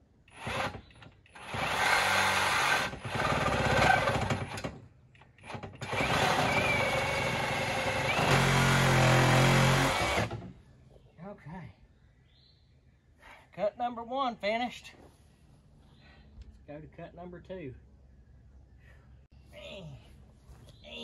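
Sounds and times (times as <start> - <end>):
reciprocating saw cutting pipe: 0.3 - 4.7, 5.5 - 10.5.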